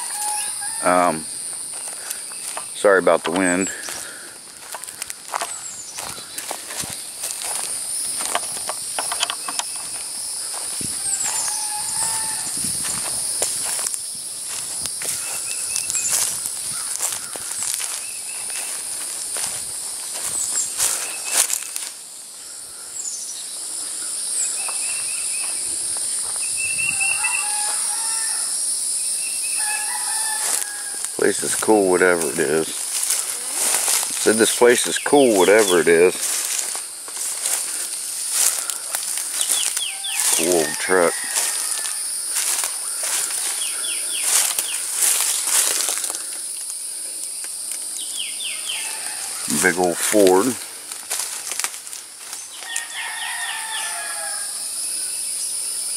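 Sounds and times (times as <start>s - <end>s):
footsteps rustling through weeds: 0.0s - 22.1s, 22.8s - 28.3s, 29.6s - 54.3s
high-pitched insect drone: 0.0s - 55.9s
bird chirps: 22.4s - 25.8s, 38.6s - 40.7s.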